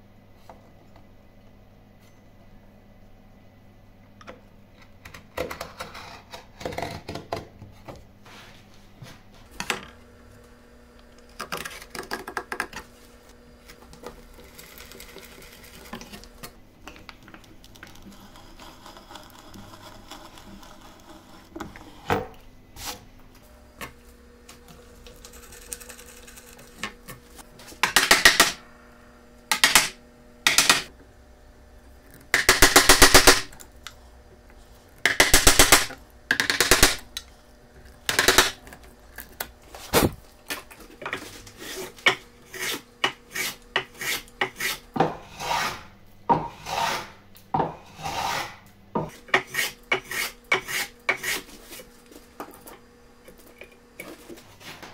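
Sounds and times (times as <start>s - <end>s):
knife scoring wood: 41.5s - 47.2s, 47.8s - 51.9s.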